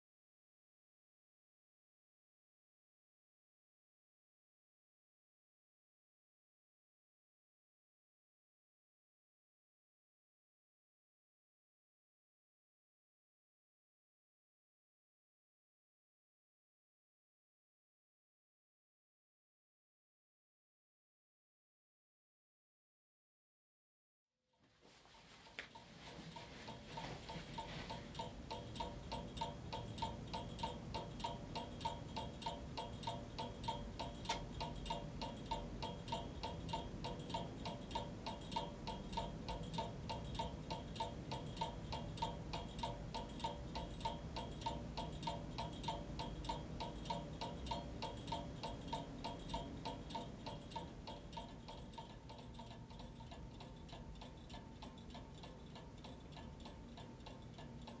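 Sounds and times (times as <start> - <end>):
clock ticking: 25.2 - 58.0.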